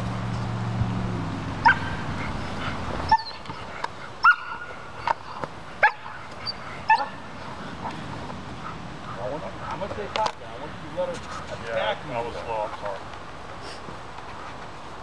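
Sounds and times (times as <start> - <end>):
dog barking: 1.6 - 2.0, 4.2 - 4.7, 5.8 - 7.2
dog yipping: 1.6 - 2.0, 3.1 - 3.5, 4.2 - 5.2, 5.8 - 7.2.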